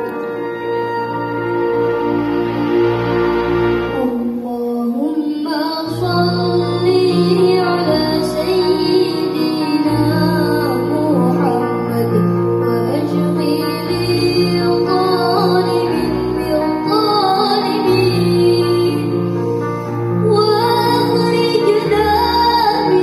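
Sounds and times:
orchestra playing: 0:00.0 - 0:23.0
child singing: 0:04.0 - 0:19.2, 0:20.3 - 0:23.0.

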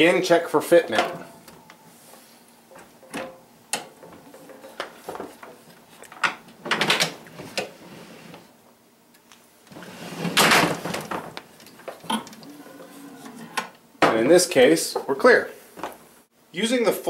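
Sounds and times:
knocks and clunks: 0:00.9 - 0:01.6
scraping sliding noises: 0:07.3 - 0:08.5, 0:09.7 - 0:10.9, 0:12.4 - 0:13.7.

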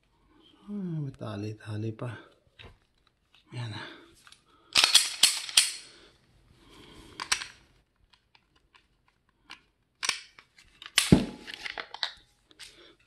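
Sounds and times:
pistol parts clicking: 0:04.2 - 0:06.0, 0:07.2 - 0:12.8.

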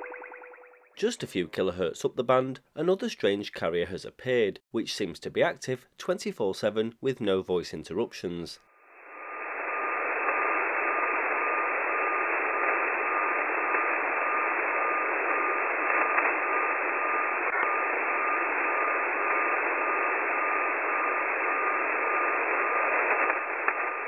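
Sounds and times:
steady whistle-like radio tone: 0:00.0 - 0:01.1, 0:09.0 - 0:24.0
radio static hiss: 0:08.8 - 0:24.0.

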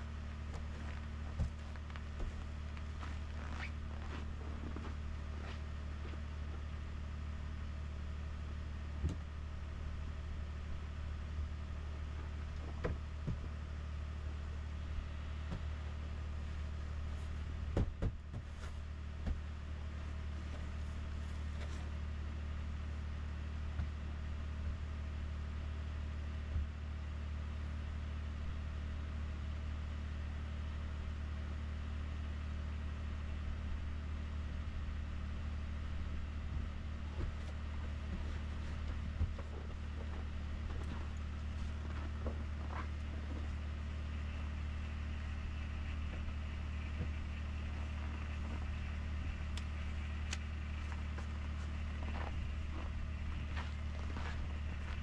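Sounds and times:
truck engine idling: 0:00.0 - 0:28.9, 0:29.9 - 0:55.0
snow brush knocks and scrapes: 0:00.5 - 0:05.6.

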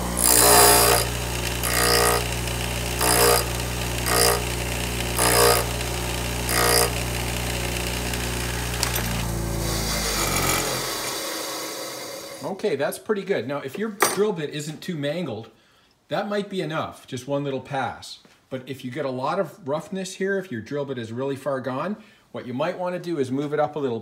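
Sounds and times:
bench grinder humming: 0:00.0 - 0:12.4
drill bit grinding on wheel: 0:00.0 - 0:12.4.

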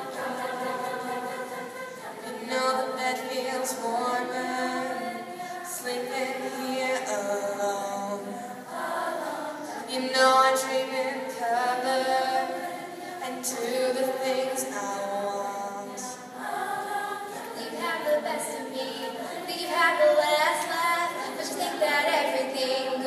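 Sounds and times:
girls' choir singing in harmony: 0:00.0 - 0:23.0.

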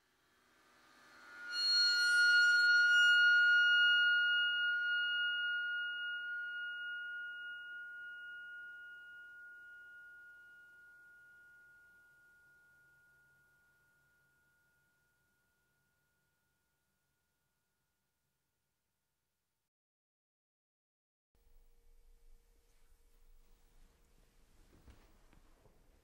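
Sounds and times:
high ringing tone: 0:01.1 - 0:14.6.

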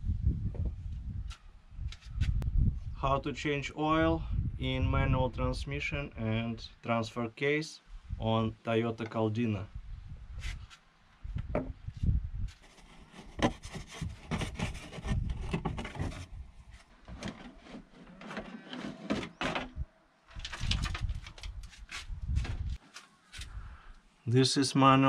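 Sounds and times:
plastic rubbing and scraping: 0:12.5 - 0:23.5.

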